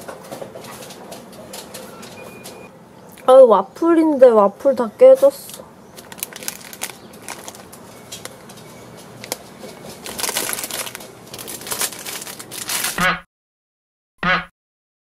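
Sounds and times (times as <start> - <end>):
plastic bags crinkling: 5.9 - 13.0.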